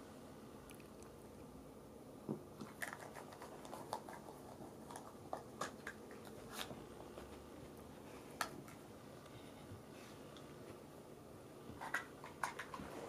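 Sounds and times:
plastic cups clicking on carpet: 2.6s - 7.3s, 11.8s - 13.0s.

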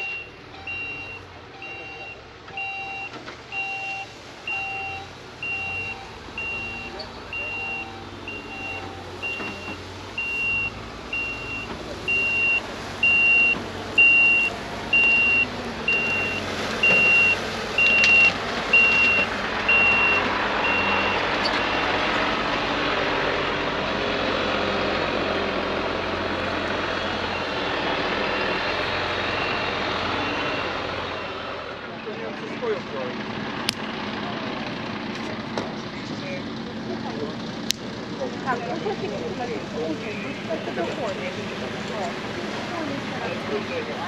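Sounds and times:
reversing alarm beeping: 0.0s - 21.9s, 27.2s - 31.4s
fire engine running: 0.0s - 44.0s.

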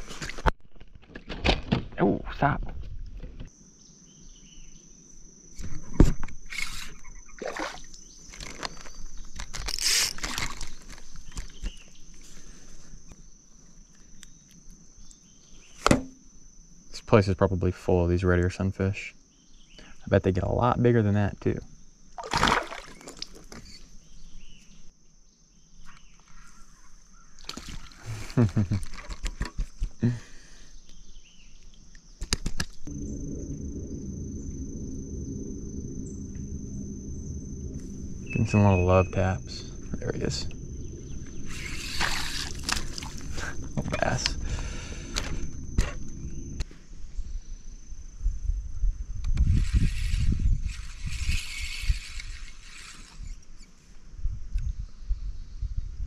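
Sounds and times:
crickets trilling: 0.0s - 56.0s
water splashing: 7.4s - 8.0s, 22.2s - 23.5s, 41.4s - 43.8s
steady low rumble: 32.8s - 52.6s.

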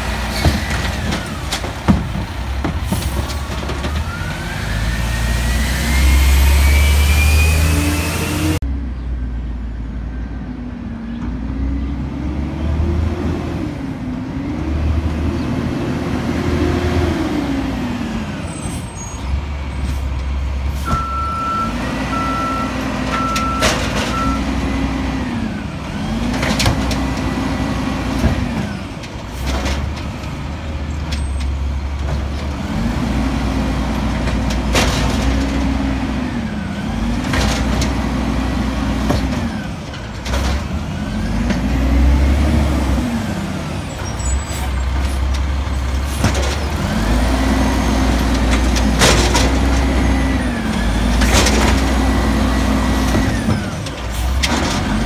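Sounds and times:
garbage truck engine surging: 0.0s - 8.6s, 11.5s - 55.0s
short beeps: 20.9s - 24.5s.

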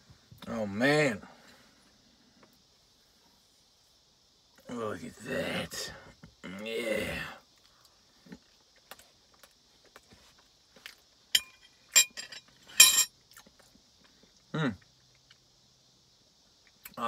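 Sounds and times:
chewing cookie dough: 7.5s - 11.3s, 12.5s - 15.6s
metal spoon clinking jar: 11.4s - 13.1s.

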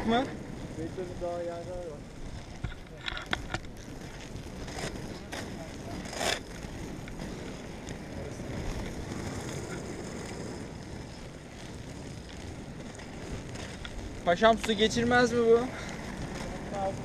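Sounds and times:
skate wheels rolling on asphalt: 0.0s - 17.0s
skate scuff: 2.3s - 17.0s.

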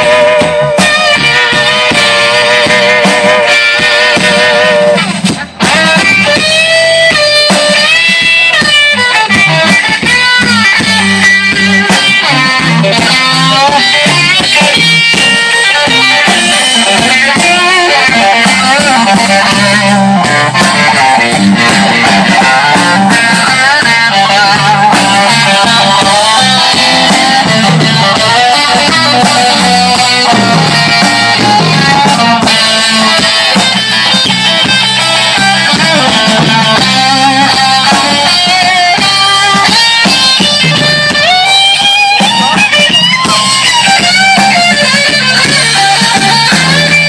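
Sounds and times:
electric guitar: 0.0s - 47.0s
live blues band playing: 0.0s - 47.0s.

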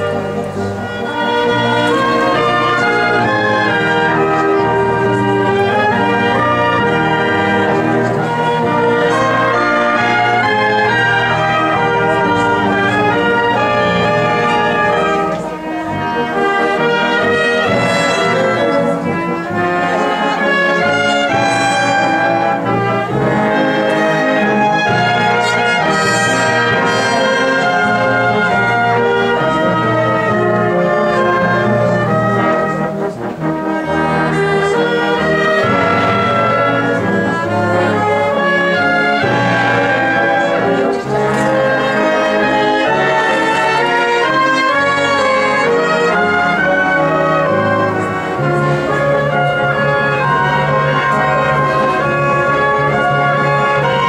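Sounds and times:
military wind band playing: 0.0s - 54.0s.

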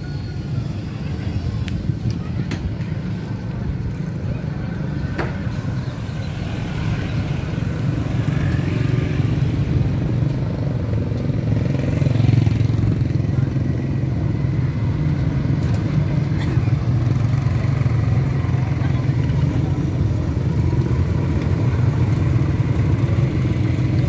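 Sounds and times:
people talking: 0.0s - 7.8s, 12.0s - 14.5s, 15.7s - 22.3s
motorcycle engines rumbling: 0.0s - 24.0s.

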